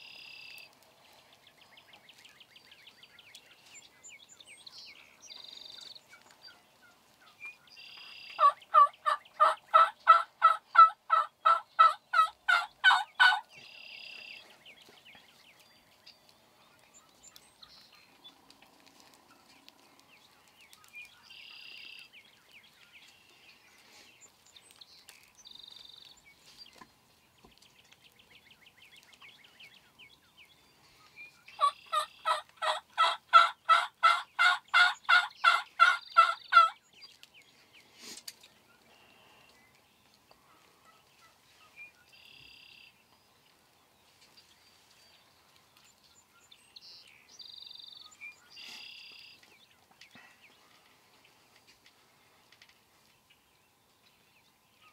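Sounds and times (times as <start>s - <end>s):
wild turkey yelping: 8.0s - 13.5s, 31.6s - 36.8s, 40.5s - 41.4s.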